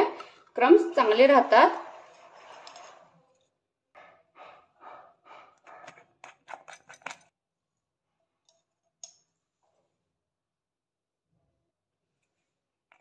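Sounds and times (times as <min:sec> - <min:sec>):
spoon scraping glass jar: 0:01.2 - 0:03.4, 0:05.5 - 0:07.3.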